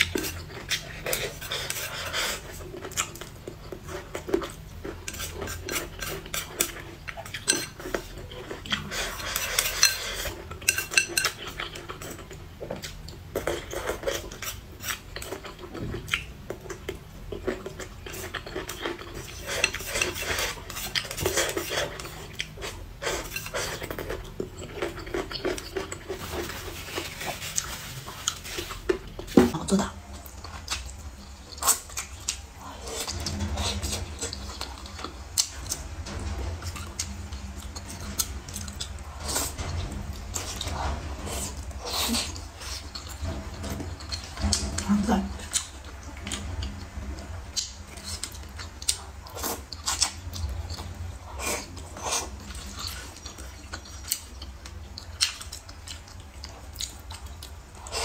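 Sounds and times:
utensils clinking on dishes: 3.9s - 15.6s
chewing and mouth noises: 45.4s - 58.0s.

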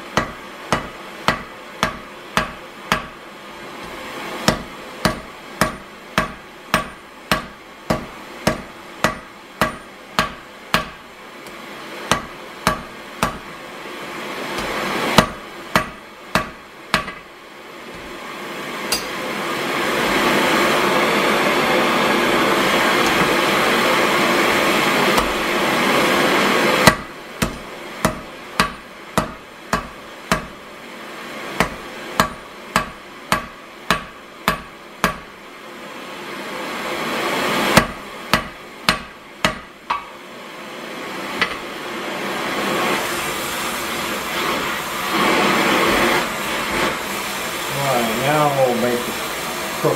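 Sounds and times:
hammer striking iron on anvil: 0.1s - 3.2s, 3.8s - 13.5s, 14.6s - 17.3s, 18.9s - 19.2s, 23.0s - 23.5s, 26.8s - 30.6s, 31.6s - 35.3s, 37.8s - 40.2s
steady rushing noise: 17.5s - 26.9s.

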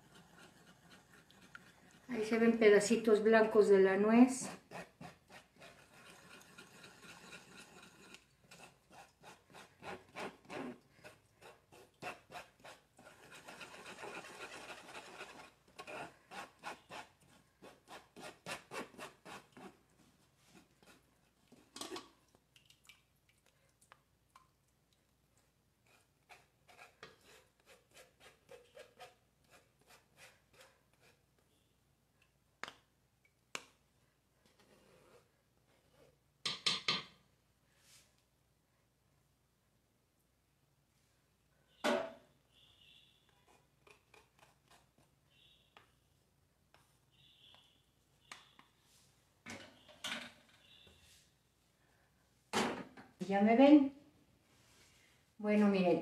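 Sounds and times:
spoon scraping metal strainer: 4.5s - 10.8s.

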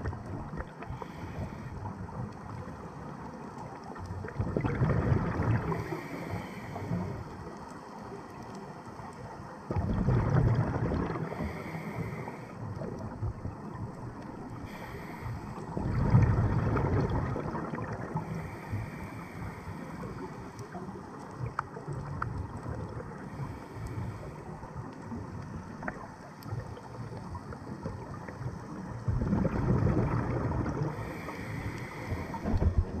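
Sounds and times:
regulator bubbles underwater: 0.0s - 33.0s
steady underwater hiss: 0.0s - 33.0s
faint clicks: 1.8s - 4.3s, 6.8s - 9.5s, 19.4s - 28.7s.

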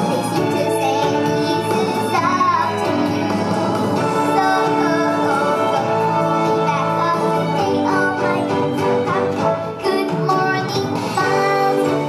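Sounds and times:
girl singing: 0.0s - 12.0s
upbeat song backing track: 0.0s - 12.0s.

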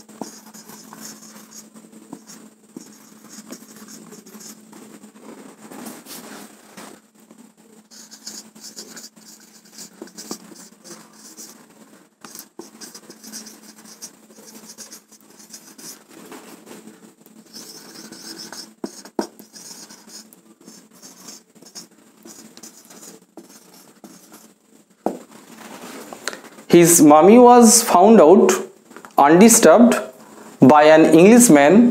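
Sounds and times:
marker scratching on whiteboard: 0.0s - 4.8s, 7.9s - 16.1s, 17.4s - 25.3s.

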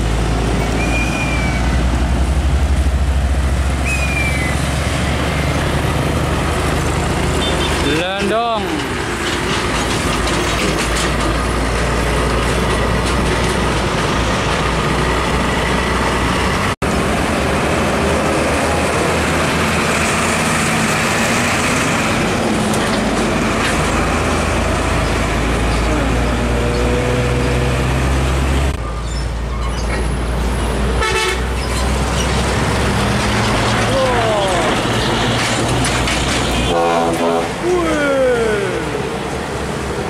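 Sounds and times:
diesel trucks driving past: 0.0s - 40.0s
road traffic: 0.0s - 40.0s.

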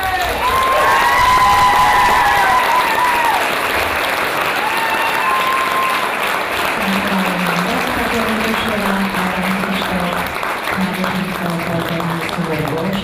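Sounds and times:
crowd calling out: 0.0s - 6.2s
audience applauding: 0.0s - 13.0s.

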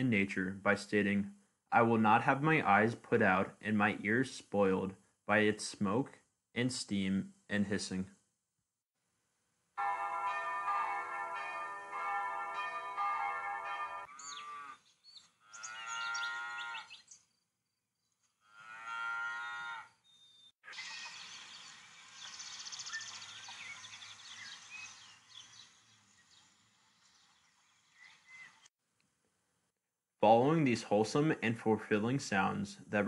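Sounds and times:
bell ringing: 9.8s - 14.1s
cows mooing: 14.1s - 14.8s, 15.4s - 16.9s, 18.4s - 20.0s
birds chirping and singing: 14.1s - 17.3s, 20.0s - 28.7s.

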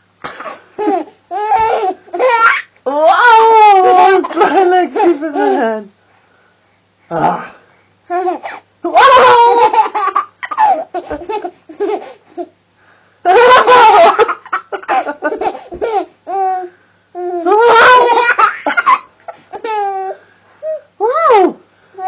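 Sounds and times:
baby laughing: 0.3s - 2.7s, 8.1s - 12.5s, 13.3s - 20.2s.

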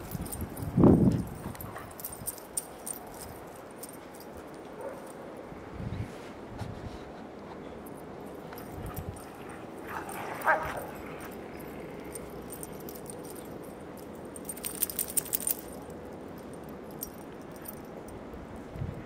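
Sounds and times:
collar tags jingling: 0.0s - 5.5s, 7.8s - 18.7s
dog yipping: 9.5s - 11.4s.

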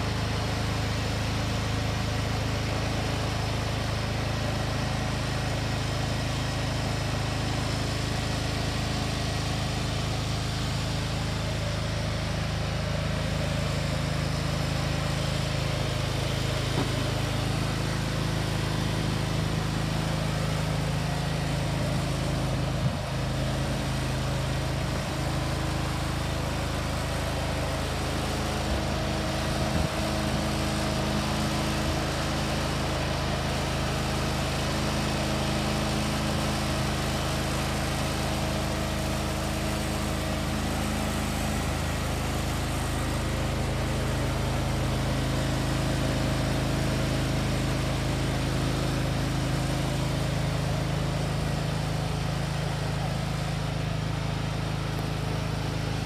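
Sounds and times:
trailer engine running steadily: 0.0s - 56.0s.

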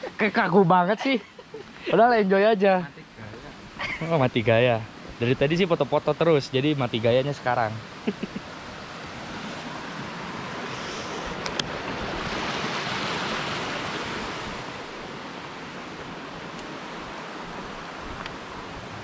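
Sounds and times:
waterfall rushing: 6.0s - 19.0s.

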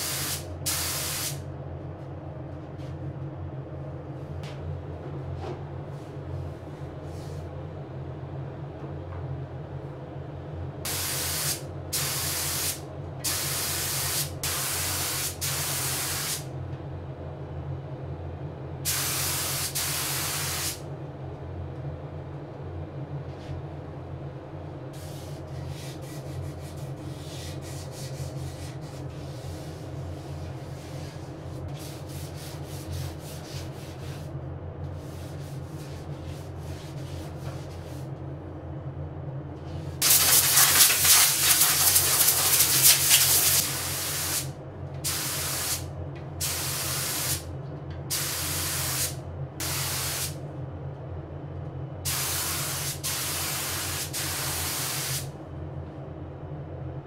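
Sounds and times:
steady low hum: 0.0s - 57.0s
spray gun hissing: 40.0s - 44.5s.

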